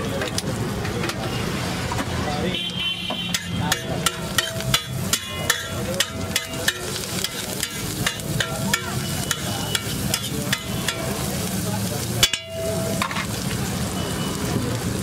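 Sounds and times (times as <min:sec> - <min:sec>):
metal spatula clanking on griddle: 0:03.1 - 0:13.6.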